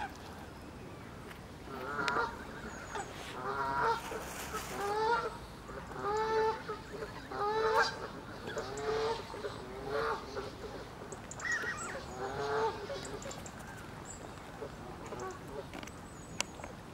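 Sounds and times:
geese honking: 1.7s - 10.6s.

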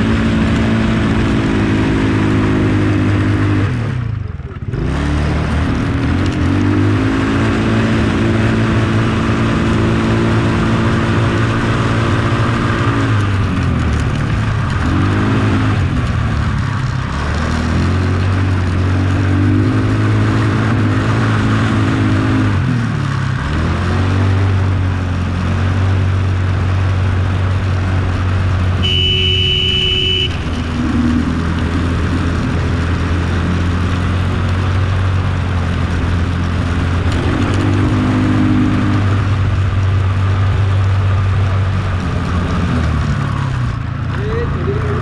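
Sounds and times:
atv engine revving: 0.0s - 45.0s.

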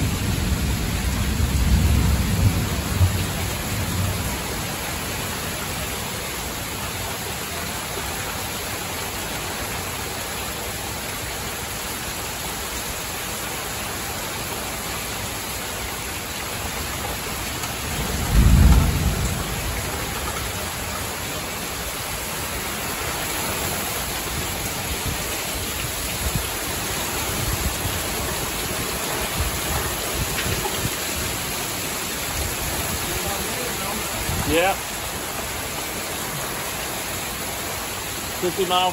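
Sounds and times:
thunder rumble: 0.0s - 5.2s, 17.6s - 21.3s
heavy rain on a metal roof: 0.0s - 38.9s.

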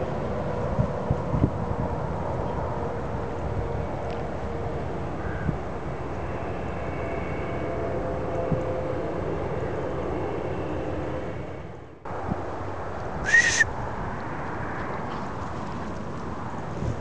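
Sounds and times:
faint engine drone: 0.0s - 17.0s
short high-pitched call: 13.2s - 13.7s.

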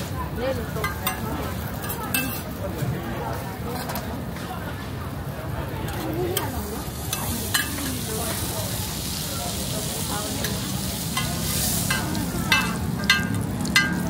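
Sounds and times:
bread sizzling on griddle: 0.3s - 4.0s, 5.7s - 14.0s
utensils clinking on griddle: 0.5s - 2.6s, 3.7s - 4.2s, 5.8s - 14.0s.

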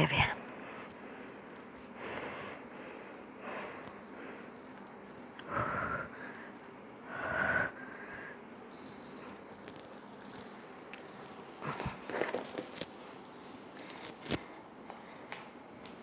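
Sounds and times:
woman breathing heavily: 0.4s - 4.7s, 5.4s - 8.4s, 13.8s - 15.6s.

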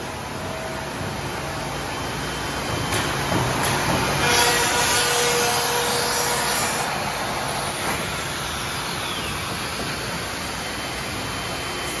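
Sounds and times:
cnc router with dust extraction: 3.7s - 12.0s.

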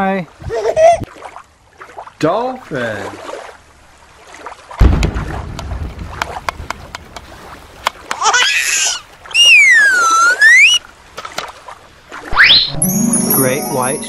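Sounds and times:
low thump: 4.8s - 5.7s
sliding whistle tone: 9.4s - 10.8s, 12.3s - 12.9s
rising chirps: 12.3s - 14.0s.

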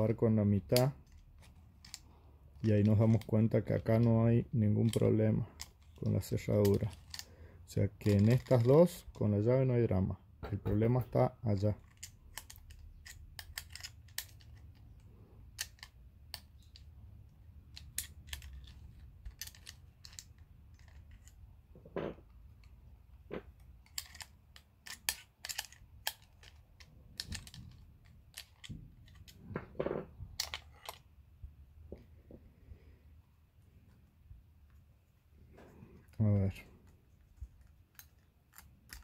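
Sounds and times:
metal lock parts clinking: 0.0s - 9.4s, 10.8s - 21.5s, 23.5s - 29.5s, 30.3s - 31.1s, 35.6s - 39.0s.

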